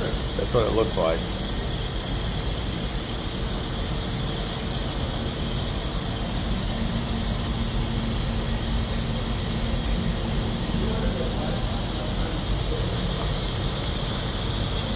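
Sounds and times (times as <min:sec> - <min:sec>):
machinery rushing and humming: 0:00.0 - 0:14.9.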